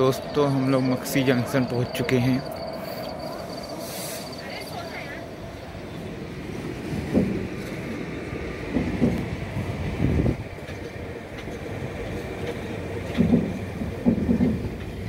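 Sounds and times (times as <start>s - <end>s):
train coach rolling rumble: 0.0s - 15.0s
wheel clunks over rail joints: 6.4s - 15.0s.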